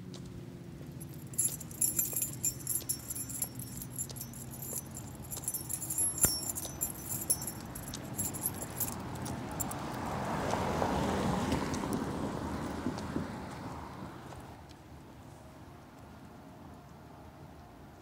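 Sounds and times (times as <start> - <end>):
light metal jingling: 0.9 - 10.2.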